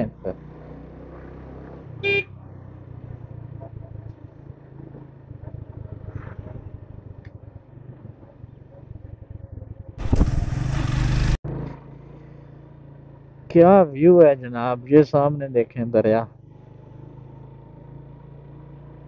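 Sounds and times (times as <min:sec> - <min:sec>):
motorcycle engine running: 0:00.0 - 0:14.0, 0:16.3 - 0:19.0
loud rushing noise: 0:10.0 - 0:11.4.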